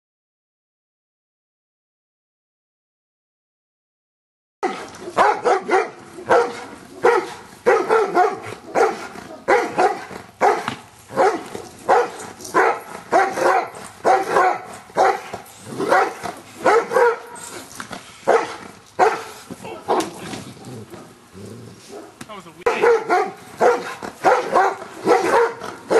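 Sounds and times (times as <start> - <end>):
dog barking: 4.6 - 17.4, 18.3 - 20.2, 21.9 - 25.9.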